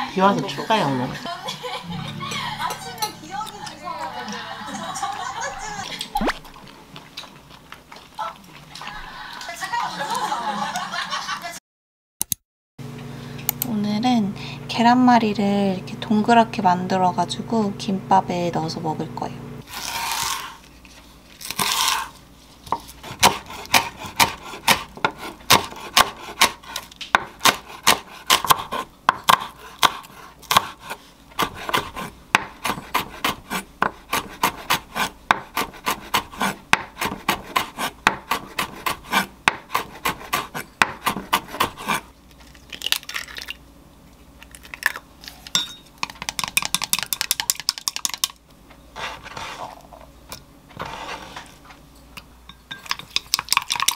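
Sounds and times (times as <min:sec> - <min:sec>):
knife chopping on wooden board: 0:22.7 - 0:42.0
chopsticks whisking egg in glass: 0:46.1 - 0:48.4, 0:52.8 - 0:53.9.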